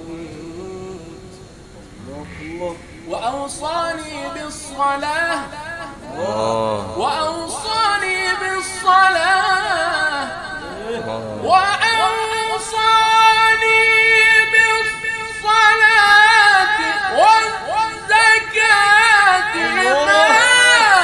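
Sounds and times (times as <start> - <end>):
man chanting melodically: 0.0 - 21.0.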